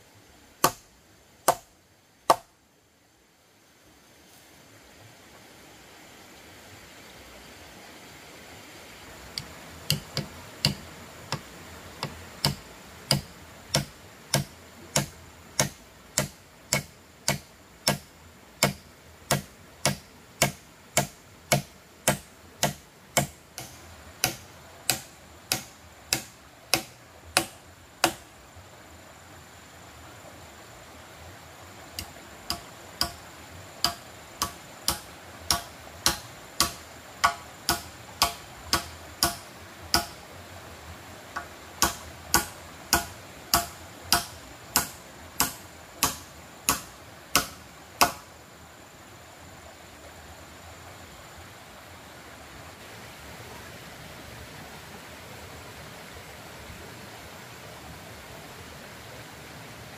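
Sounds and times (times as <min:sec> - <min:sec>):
tool striking wood: 0:00.6 - 0:01.7, 0:02.3 - 0:02.5, 0:09.4 - 0:28.2, 0:32.0 - 0:33.2, 0:33.8 - 0:40.2, 0:41.4 - 0:48.3.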